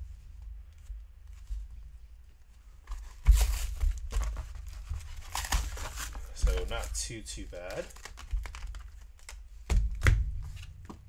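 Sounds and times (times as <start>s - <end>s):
plastic crinkling: 2.3s - 11.0s
cardboard tearing: 3.0s - 9.4s.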